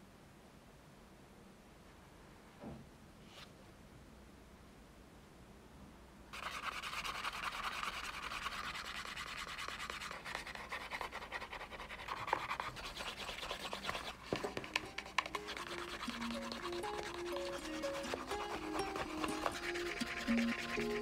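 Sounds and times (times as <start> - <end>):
wood rubbing leather edge: 6.8 - 21.0
music: 14.3 - 21.0.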